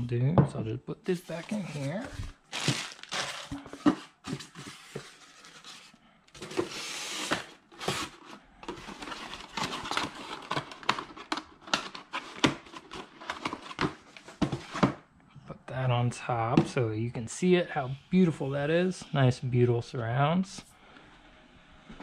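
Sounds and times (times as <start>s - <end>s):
cardboard rustling and scraping: 1.1s - 15.0s.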